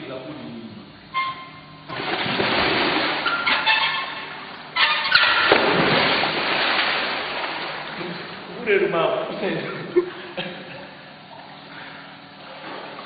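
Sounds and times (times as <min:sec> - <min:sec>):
swimmer splashing in pool: 0:01.9 - 0:08.6.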